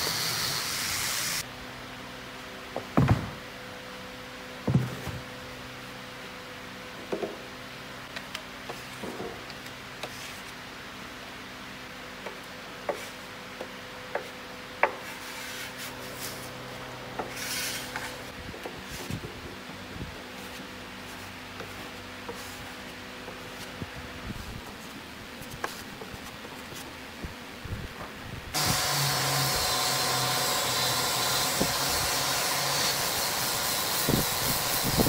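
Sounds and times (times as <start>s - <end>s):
brush scraping on plywood: 14.9s - 16.6s, 17.2s - 19.2s, 20.3s - 23.7s.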